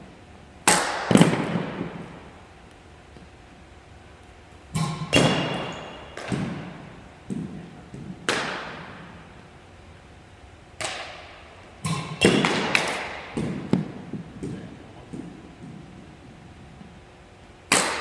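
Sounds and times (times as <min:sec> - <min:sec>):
pitching machine firing balls: 0:00.6 - 0:02.2, 0:04.7 - 0:09.1, 0:10.8 - 0:14.7
bat striking baseballs: 0:00.6 - 0:02.4, 0:04.7 - 0:09.5, 0:10.8 - 0:16.1, 0:17.7 - 0:18.0.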